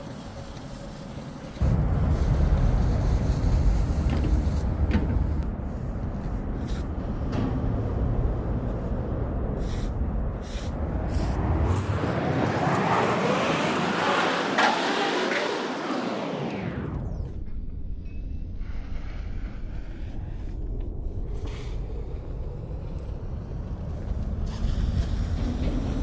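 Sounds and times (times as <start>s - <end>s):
city traffic rumble: 0.0s - 18.0s, 18.6s - 26.0s
rushing noise: 0.7s - 17.4s.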